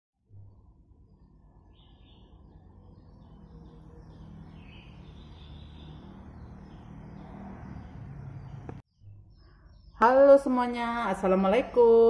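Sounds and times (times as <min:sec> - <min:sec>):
low hum: 0:00.2 - 0:10.1
faint bird chirps: 0:01.4 - 0:07.2, 0:08.4 - 0:10.4.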